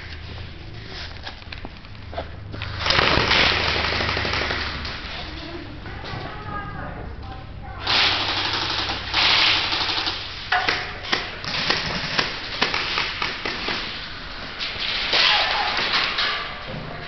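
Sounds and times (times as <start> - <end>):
airsoft guns firing: 2.7 - 5.3, 7.8 - 16.2
pellets striking: 2.7 - 5.3, 7.8 - 16.7.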